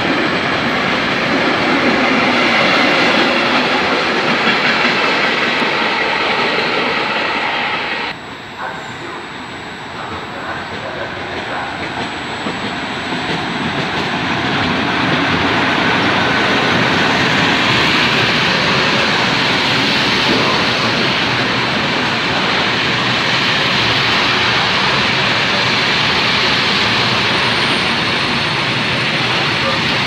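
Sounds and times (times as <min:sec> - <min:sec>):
freight train passing: 0:00.0 - 0:30.0.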